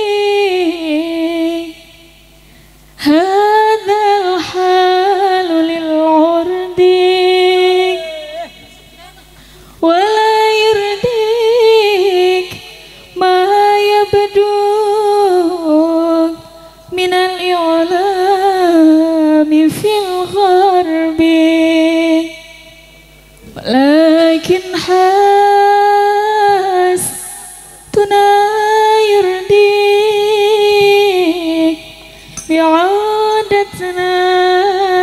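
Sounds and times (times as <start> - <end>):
woman singing long held notes: 3.0 - 22.8.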